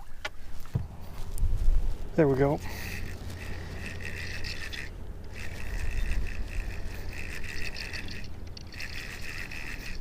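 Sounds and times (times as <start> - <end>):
fishing reel whirring: 2.6 - 10.0.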